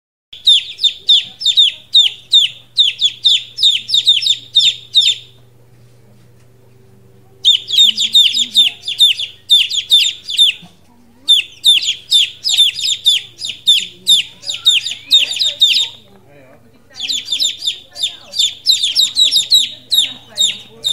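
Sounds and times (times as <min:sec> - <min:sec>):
chicks peeping: 0:00.4 - 0:05.5, 0:07.3 - 0:20.9.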